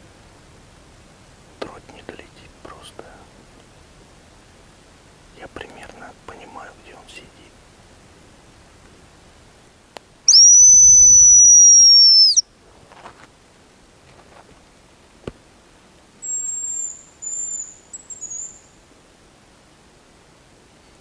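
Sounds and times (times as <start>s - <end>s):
high thin decoy whistle: 10.3s - 12.4s
faint whistled bird song: 10.3s - 12.5s, 16.2s - 18.8s.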